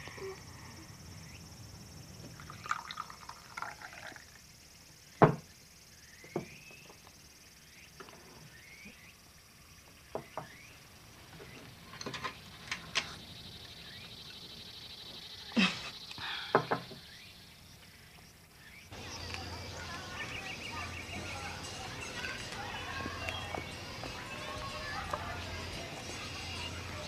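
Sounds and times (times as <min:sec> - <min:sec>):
tea pouring into a cup: 0:02.3 - 0:04.5.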